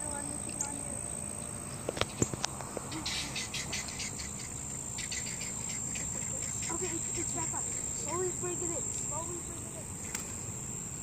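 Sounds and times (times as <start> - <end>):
insects droning: 0.0 - 11.0
short raspy chirps: 1.3 - 8.3
sharp clicks: 10.0 - 10.4.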